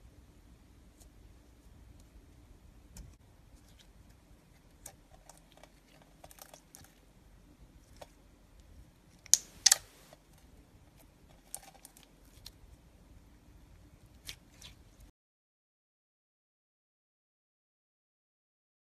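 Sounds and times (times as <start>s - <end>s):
sharp loud slime pops: 9.3s - 9.9s
slime squelching clicks and pops: 9.3s - 9.9s.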